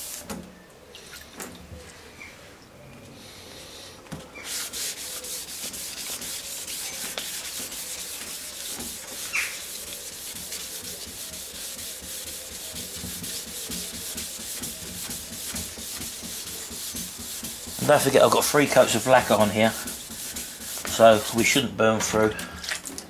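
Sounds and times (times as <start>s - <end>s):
sandpaper rubbing on wet lacquer: 4.4s - 22.8s.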